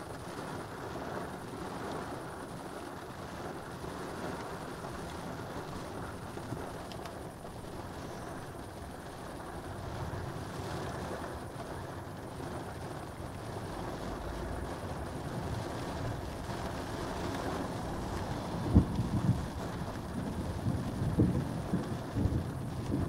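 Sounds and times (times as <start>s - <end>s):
low rumbling wind: 0.0s - 23.0s
distant thunder rumble: 13.6s - 23.0s.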